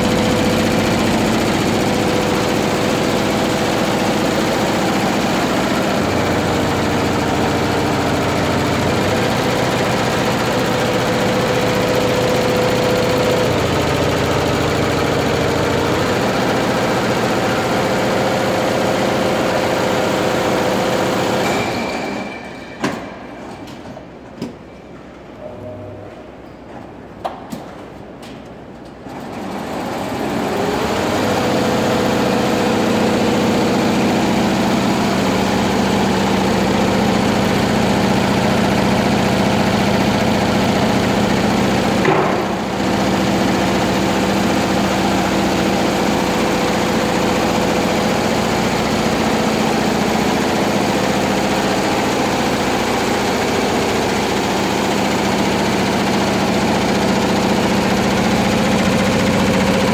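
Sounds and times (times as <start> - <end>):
embroidery machine clatter and hum: 0.0 - 59.9.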